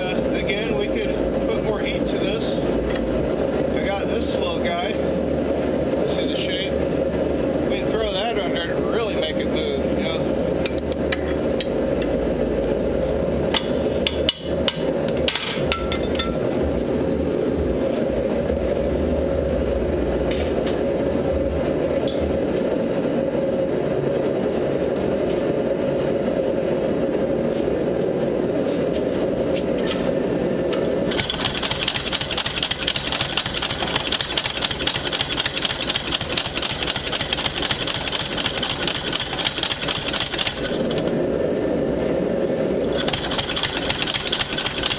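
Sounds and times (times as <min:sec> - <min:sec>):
power hammer motor running: 0:31.1 - 0:41.0, 0:42.9 - 0:44.9.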